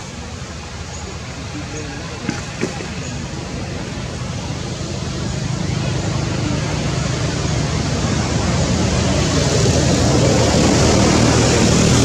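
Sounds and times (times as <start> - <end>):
engine drone with low rumble: 0.0 - 12.0.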